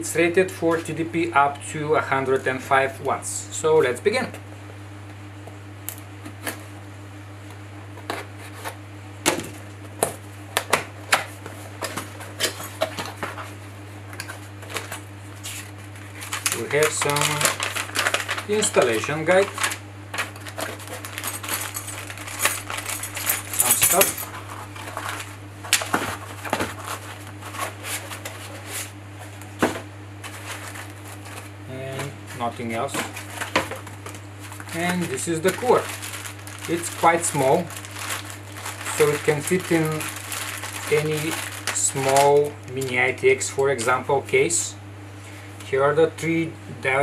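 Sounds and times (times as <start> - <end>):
steady low hum: 0.0 - 47.0
foam and cardboard rustling: 14.3 - 23.0, 24.3 - 42.5
cardboard flaps clicking and scraping: 24.7 - 32.1.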